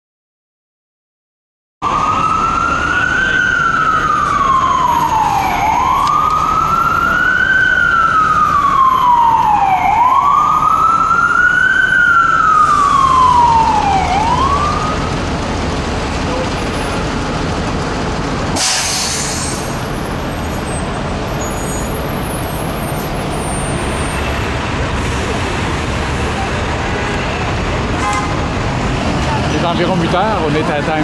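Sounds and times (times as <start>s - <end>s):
emergency siren wailing: 1.8s - 17.2s
city traffic noise: 1.8s - 31.0s.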